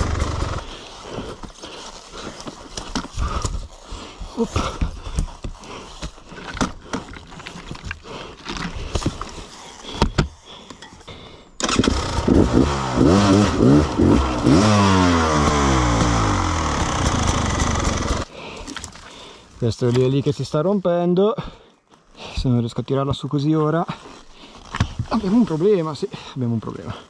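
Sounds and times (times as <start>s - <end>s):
motorcycle engine revving: 0.0s - 0.8s, 11.6s - 18.3s
knocks and scuffs on rocky ground: 24.6s - 25.8s.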